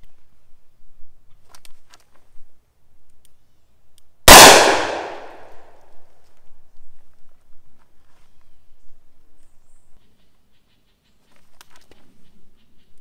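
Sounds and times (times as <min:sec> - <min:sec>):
revolver gunshot: 0:04.3 - 0:05.5.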